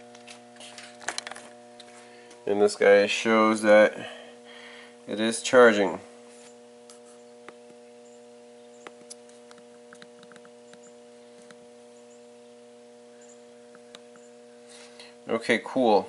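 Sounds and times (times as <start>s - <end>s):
battery charger humming: 0.0s - 15.3s.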